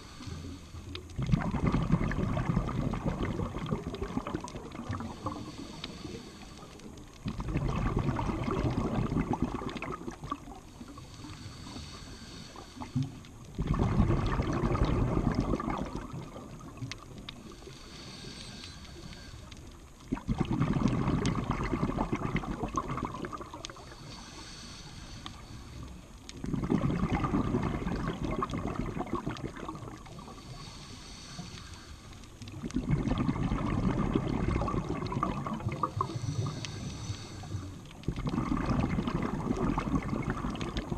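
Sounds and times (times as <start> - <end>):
regulator inhale hiss: 0.0 - 1.1, 4.9 - 7.2, 10.4 - 13.6, 16.0 - 20.0, 23.6 - 26.5, 30.0 - 32.6, 35.8 - 38.1
exhaled bubbles rumbling underwater: 0.0 - 40.9.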